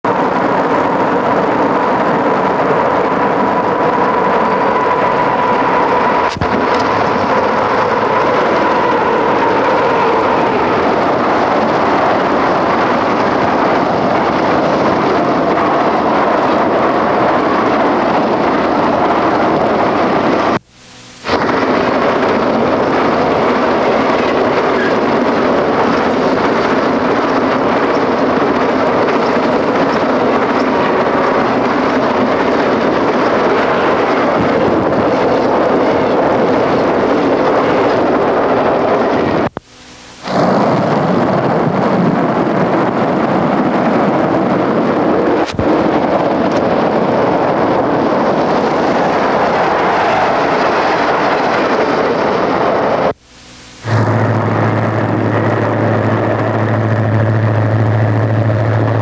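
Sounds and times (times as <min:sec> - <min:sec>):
wheels rushing on rail: 0:00.0 - 0:59.0
trains passing: 0:00.1 - 0:20.6, 0:21.3 - 0:39.4, 0:40.2 - 0:53.2
steady tone: 0:00.1 - 0:37.0, 0:50.7 - 0:59.0.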